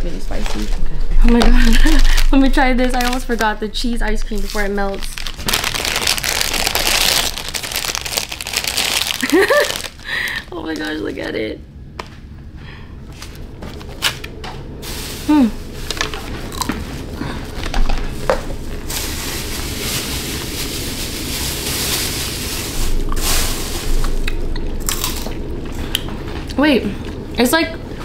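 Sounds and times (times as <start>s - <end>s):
person humming: 15.2s - 15.6s
biting and chewing ice: 24.2s - 25.4s.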